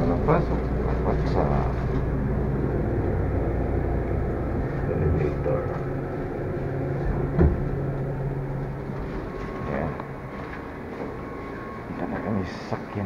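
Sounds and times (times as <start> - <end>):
elevator mechanical hum: 0.0 - 13.0
elevator knock: 2.0 - 11.2.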